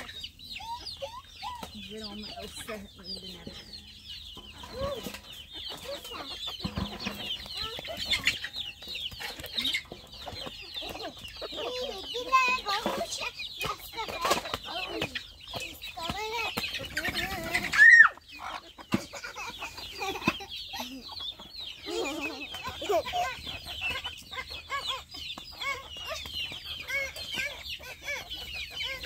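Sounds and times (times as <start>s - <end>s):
chickens clucking: 0.0s - 29.0s
loud high chicken cry: 16.6s - 29.0s.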